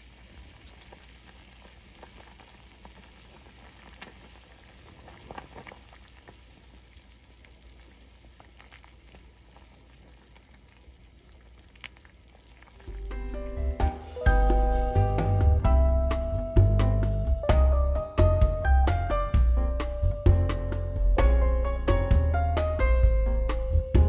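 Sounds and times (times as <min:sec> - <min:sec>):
soup bubbling in a pot: 0:00.0 - 0:14.5
plucked background music: 0:12.8 - 0:24.0.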